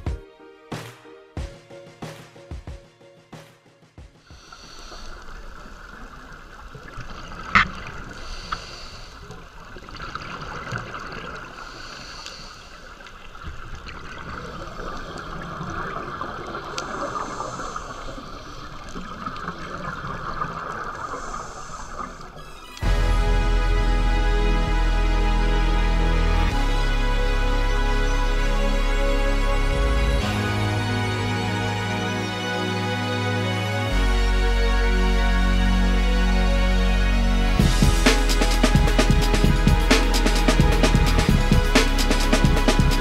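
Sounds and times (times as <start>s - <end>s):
diver breathing through regulator: 4.2s - 5.7s, 8.1s - 9.5s, 11.6s - 13.0s, 16.8s - 18.6s, 21.0s - 22.4s.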